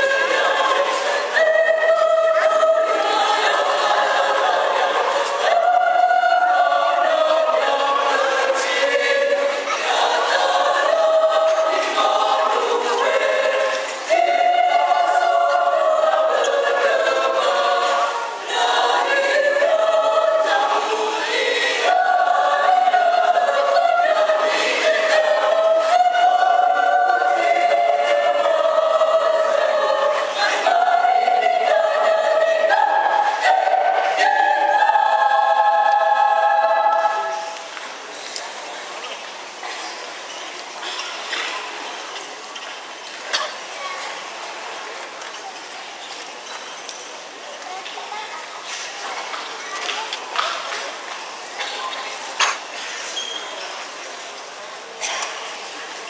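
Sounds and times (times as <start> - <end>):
mixed choir singing: 0.0 - 38.9.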